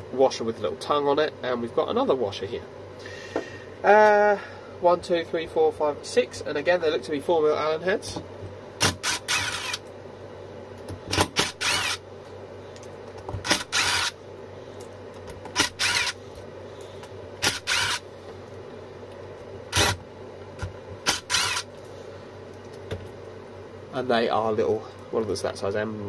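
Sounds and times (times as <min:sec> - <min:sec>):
cordless power driver spinning: 0:08.9 - 0:09.8, 0:11.1 - 0:12.0, 0:13.4 - 0:14.2, 0:15.5 - 0:16.2, 0:17.4 - 0:18.0, 0:21.0 - 0:21.7.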